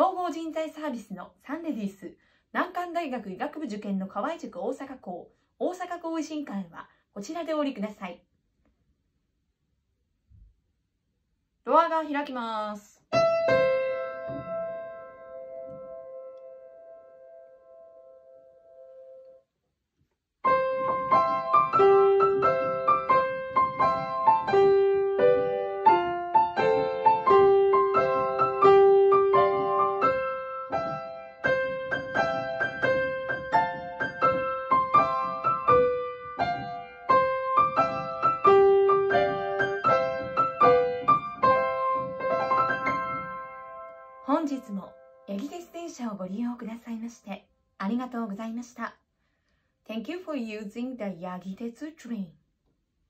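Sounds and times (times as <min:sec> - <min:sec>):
lively piano melody: 0:13.1 - 0:19.3, 0:20.4 - 0:45.6
held piano chord: 0:20.5 - 0:44.3.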